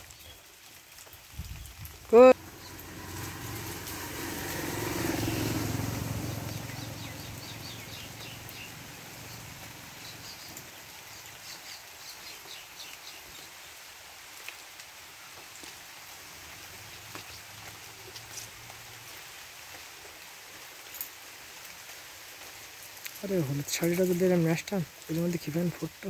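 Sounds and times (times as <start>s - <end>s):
small birds chirping: 0.0s - 13.8s
light rain hissing: 0.0s - 26.0s
engine passing by: 2.2s - 10.7s.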